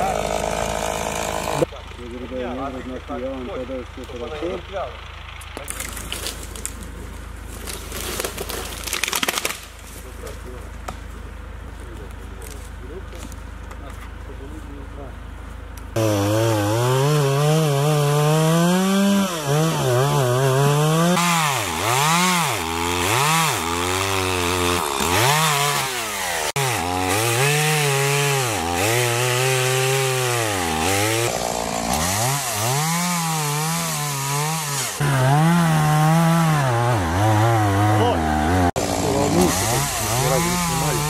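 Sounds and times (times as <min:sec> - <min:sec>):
chainsaw cutting wood: 0:00.0 - 0:01.7, 0:07.5 - 0:09.8, 0:16.0 - 0:41.0.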